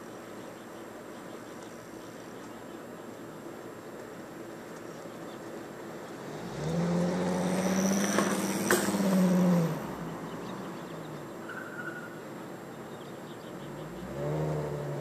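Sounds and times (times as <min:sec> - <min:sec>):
vehicle engine driving past: 0:06.0 - 0:12.2, 0:13.4 - 0:15.0.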